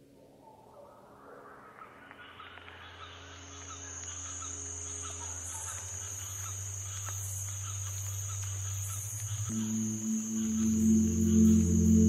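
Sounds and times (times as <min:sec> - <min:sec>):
shrill insect buzz: 0:03.5 - 0:12.0
low music drone: 0:09.5 - 0:12.0.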